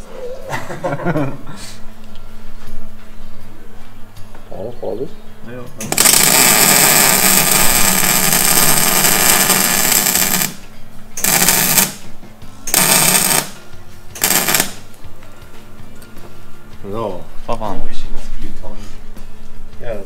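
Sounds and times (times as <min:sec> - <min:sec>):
welding arc crackling: 0:05.8 - 0:10.6, 0:11.2 - 0:12.0, 0:12.7 - 0:13.6, 0:14.2 - 0:14.9.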